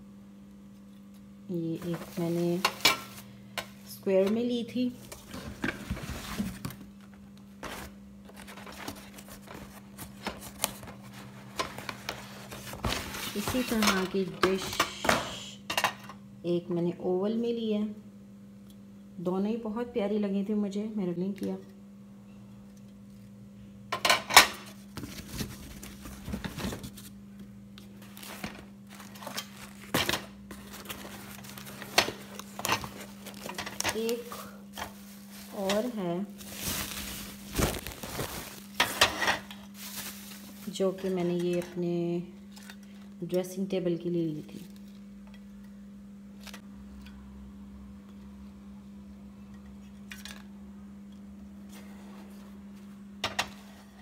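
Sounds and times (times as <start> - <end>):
low steady hum: 0.0 - 54.0
cardboard boxes rustling and scraping: 5.1 - 6.9, 7.6 - 14.0, 24.9 - 27.1, 28.0 - 39.2, 39.8 - 41.2.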